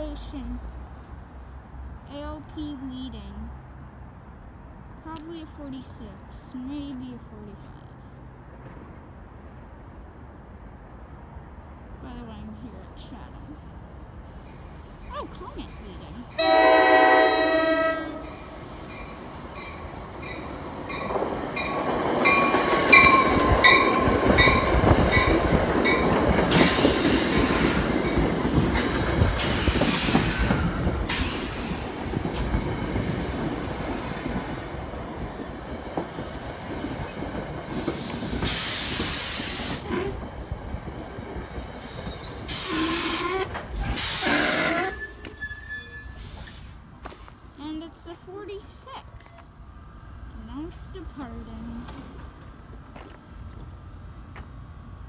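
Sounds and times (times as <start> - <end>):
train wheels rumbling: 10.7 - 55.0
train bell ringing: 15.0 - 26.3
air brake hiss: 29.4 - 30.5, 31.1 - 31.8, 37.7 - 40.0, 42.5 - 45.3, 46.0 - 47.3.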